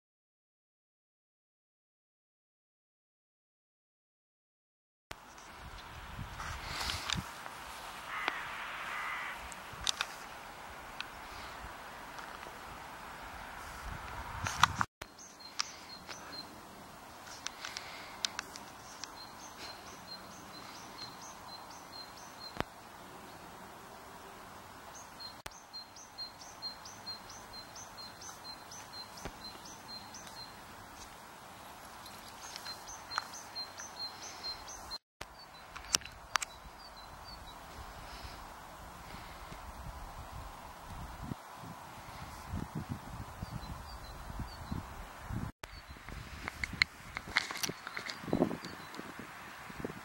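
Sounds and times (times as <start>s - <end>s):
outdoor background hiss: 5.1s - 50.0s
sharp clicks: 9.5s - 10.2s.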